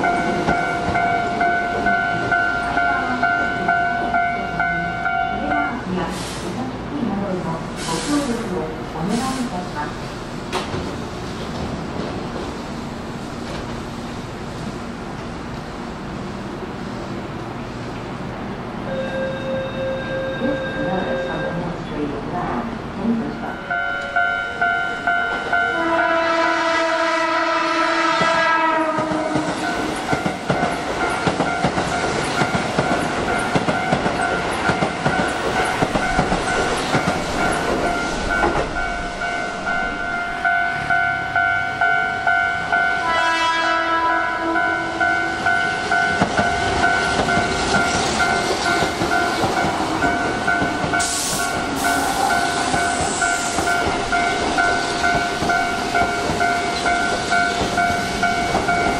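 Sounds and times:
level-crossing alarm ringing: 0.0 - 6.3, 18.9 - 21.8, 23.3 - 58.9
train wheels on rails: 0.0 - 58.9
train horn: 25.7 - 29.9, 42.7 - 45.4.

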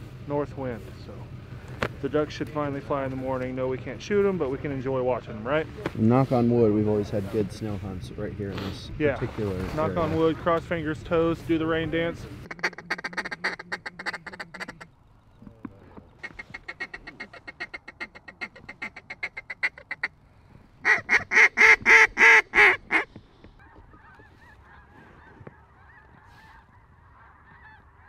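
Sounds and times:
waterfowl honking and quacking: 12.4 - 15.2, 16.0 - 20.2, 20.8 - 28.0
faint wavering bird chorus: 23.5 - 28.0.

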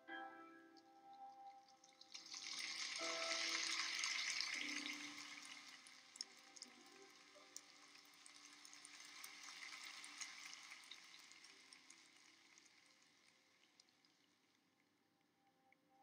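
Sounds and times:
quiet programme music: 0.0 - 8.3.

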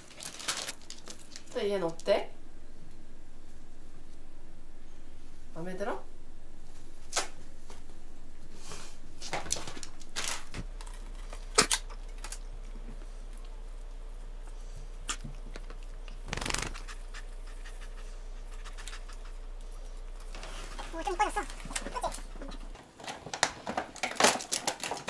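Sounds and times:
tinsel rustling: 0.0 - 2.1.

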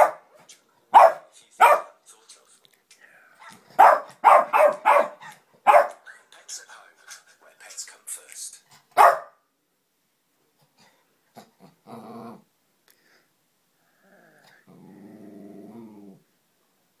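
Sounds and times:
dog growling: 11.3 - 12.5, 13.9 - 16.3.

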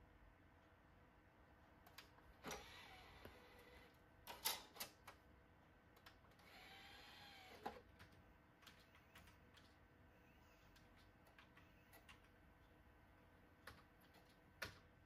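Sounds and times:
disc drive tray motor whir: 2.4 - 4.0, 6.4 - 7.8.

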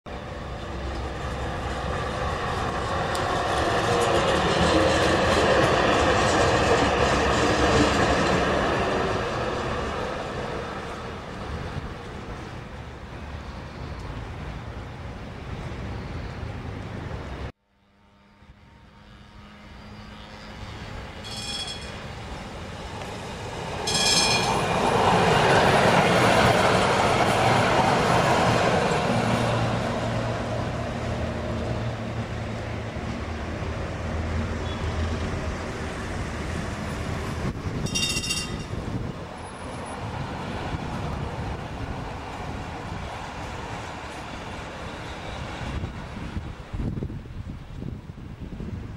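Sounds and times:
tram passing on rails: 0.1 - 48.9
high-pitched tram bell rings: 21.2 - 22.2, 23.8 - 24.7, 37.8 - 38.8.

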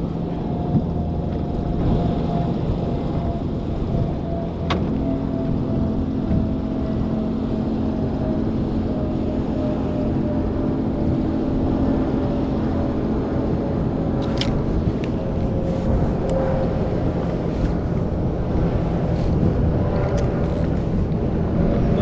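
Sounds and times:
boat engine running: 0.0 - 22.0
water noise: 0.0 - 22.0
wind: 0.0 - 22.0.

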